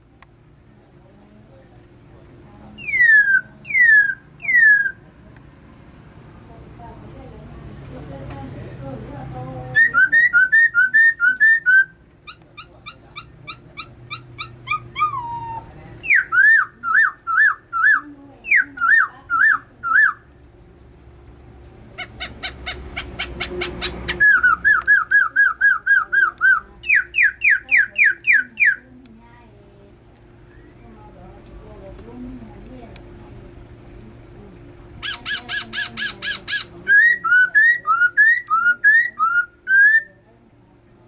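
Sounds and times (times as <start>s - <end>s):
myna whistling ringing notes: 9.7s - 12.0s, 35.0s - 40.2s.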